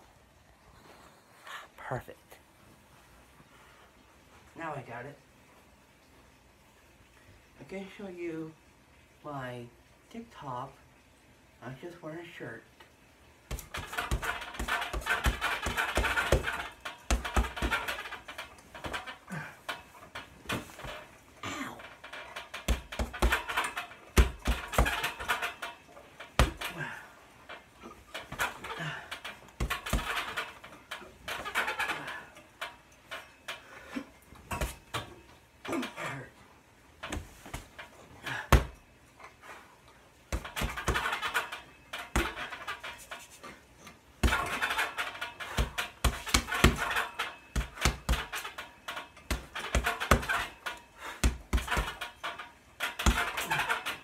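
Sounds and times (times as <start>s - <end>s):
hard breathing: 50.8s - 51.4s.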